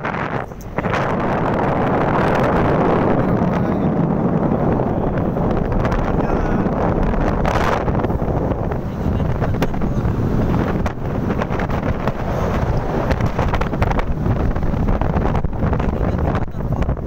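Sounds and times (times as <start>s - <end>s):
vehicle running noise: 0.0s - 17.0s
wind buffeting microphone: 0.0s - 17.0s.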